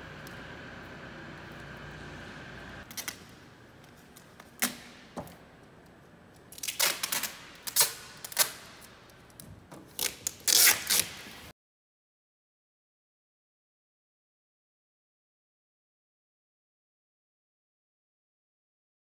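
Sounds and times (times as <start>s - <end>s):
tape ripping off roll: 6.5s - 9.0s, 9.7s - 11.5s.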